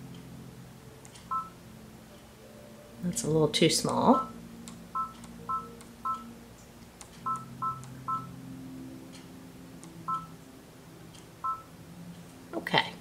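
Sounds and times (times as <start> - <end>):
short two-tone beeps: 7.3 - 8.3.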